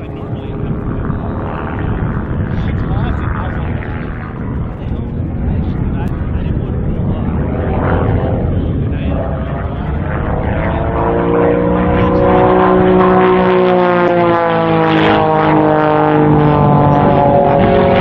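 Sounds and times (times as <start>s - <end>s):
propeller plane engine droning: 0.0s - 18.0s.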